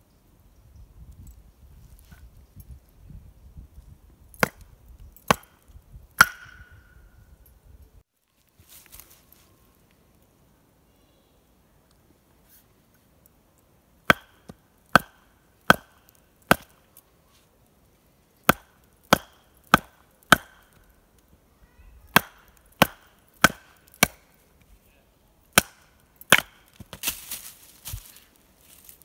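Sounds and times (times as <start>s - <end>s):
hatchet chopping wood: 4.4s - 6.9s, 14.0s - 16.8s, 18.4s - 20.9s, 22.1s - 24.4s, 25.5s - 27.2s.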